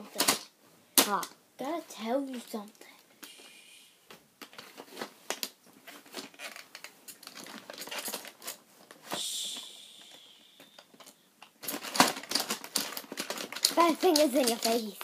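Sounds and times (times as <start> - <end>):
hissing rustle: 9.0 - 11.0.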